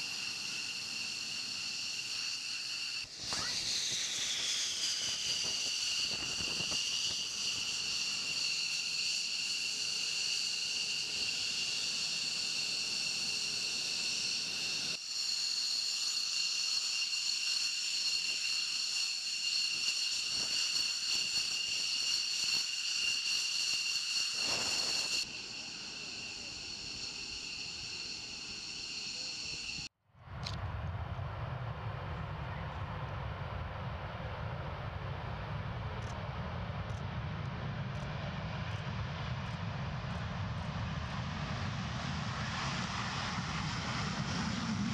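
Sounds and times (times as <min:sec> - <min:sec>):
rushing hiss: 0:00.0 - 0:29.9
jet engines idling whine: 0:00.0 - 0:44.9.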